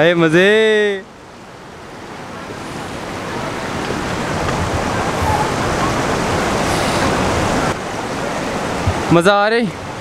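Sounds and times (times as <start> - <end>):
stream rushing over rocks: 1.1 - 10.0.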